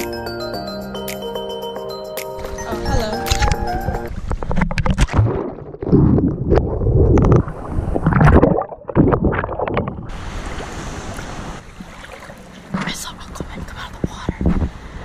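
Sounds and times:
muffled underwater water sloshing: 3.3 - 13.0
wind and surf hiss: 10.1 - 15.0.

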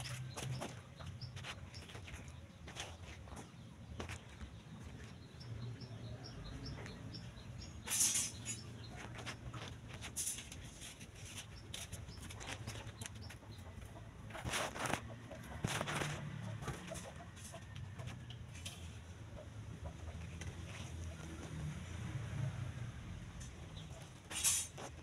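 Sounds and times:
wings fluttering: 14.3 - 17.0.

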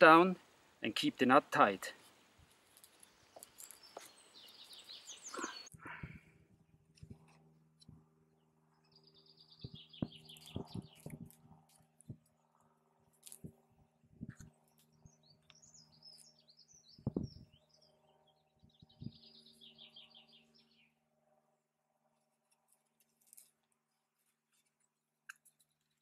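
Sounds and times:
songbird twittering and trilling: 2.8 - 5.9, 8.8 - 11.3, 14.6 - 21.0.

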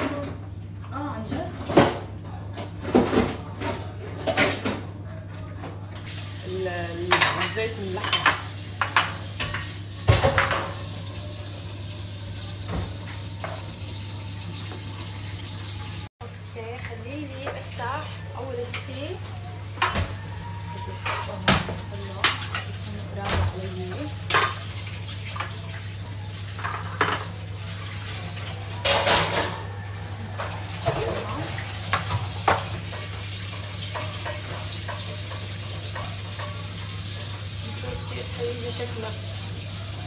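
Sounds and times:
dishes clinking on counter: 7.0 - 10.9, 19.8 - 24.7, 26.6 - 27.4, 28.8 - 36.9.

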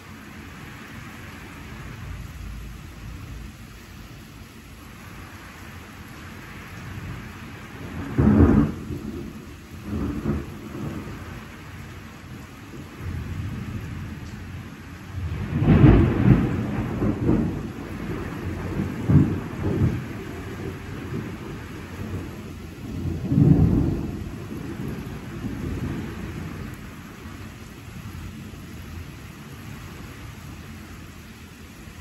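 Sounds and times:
steady rain: 0.0 - 32.0
thunder rumbling: 6.3 - 28.9.

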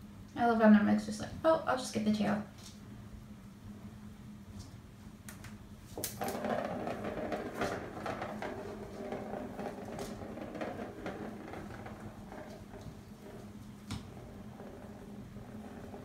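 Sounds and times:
plastic ball rolling in track: 6.0 - 16.0.

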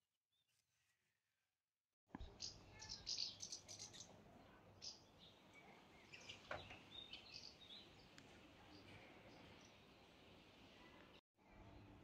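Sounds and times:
soft bird chirps: 2.2 - 10.1.

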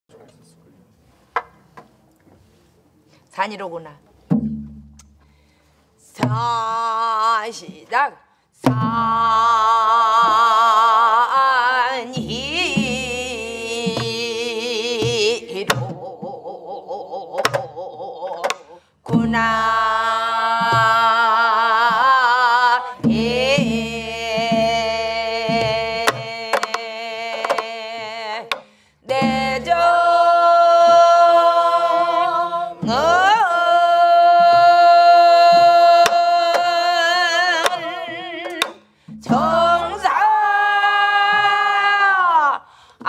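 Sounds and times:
group singing folk song: 8.7 - 42.6.

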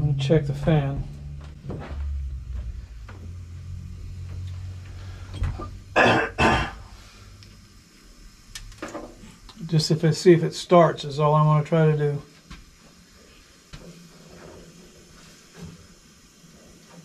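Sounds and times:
low steady hum: 0.0 - 17.0
person coughing: 6.0 - 6.8.

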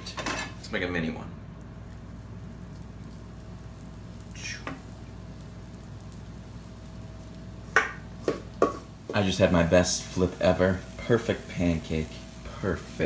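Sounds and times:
batter sizzling in a frying pan: 1.7 - 13.0.

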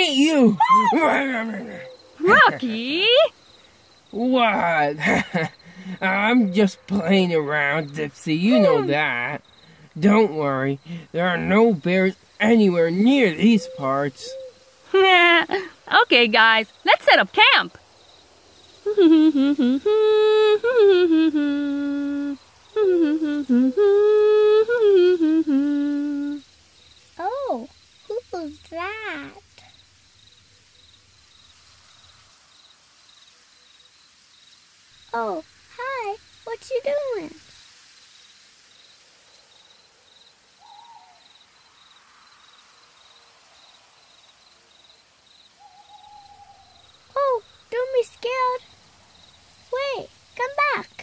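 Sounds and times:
insect chirping: 0.0 - 51.0
voice humming a cheerful tune: 0.2 - 3.3, 5.8 - 9.3, 18.8 - 26.4.

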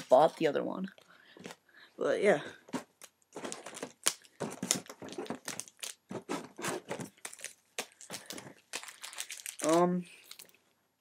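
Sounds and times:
card packaging crinkling: 2.7 - 10.6.

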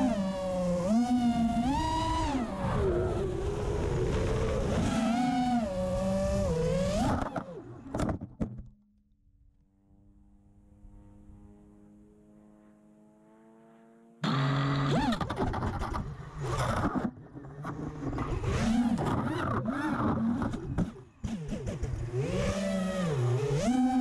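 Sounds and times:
quadcopter motors whining: 0.0 - 7.9, 14.2 - 16.8, 17.5 - 24.0.

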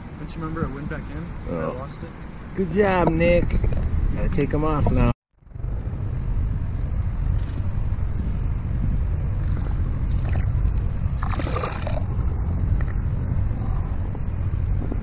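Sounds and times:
wind on microphone: 2.4 - 15.0
fish splashing in water: 11.2 - 12.1.

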